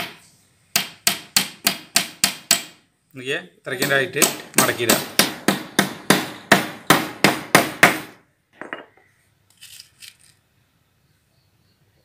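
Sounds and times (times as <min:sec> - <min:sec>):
hammer driving nails into wood: 0:00.0 - 0:02.8, 0:03.8 - 0:08.2.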